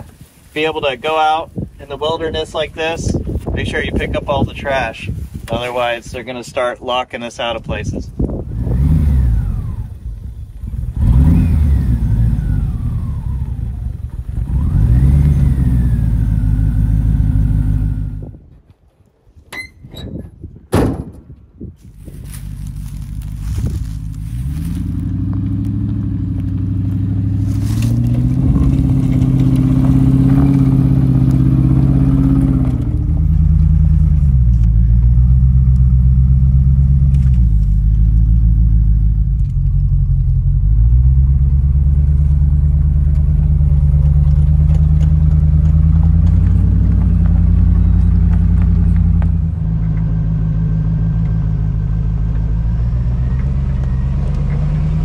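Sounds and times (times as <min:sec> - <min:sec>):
engine revving under load: 0:07.8 - 0:18.4, 0:22.3 - 0:55.0.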